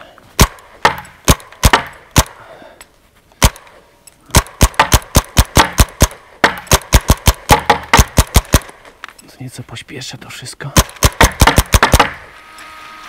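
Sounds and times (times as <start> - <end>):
paintball marker shots: 0.4 - 2.4, 3.4 - 3.7, 4.3 - 8.9, 10.8 - 12.3.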